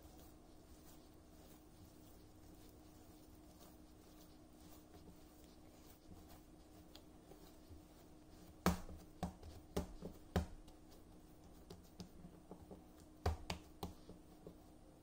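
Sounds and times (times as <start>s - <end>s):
dough thumping and slapping on board: 8.4s - 14.6s.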